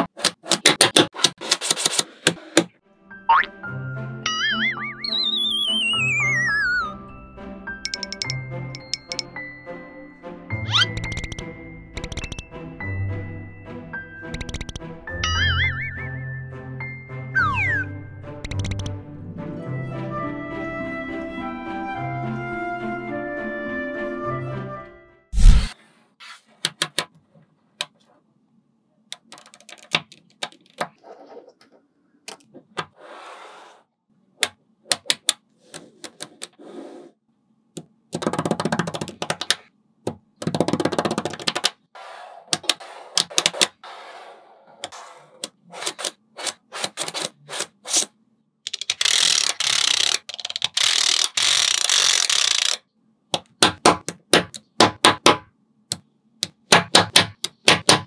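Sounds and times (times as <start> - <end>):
magnetic balls clicking together: 7.8 - 9.3, 10.7 - 12.5, 14.3 - 14.9, 18.4 - 19.0, 48.7 - 54.7.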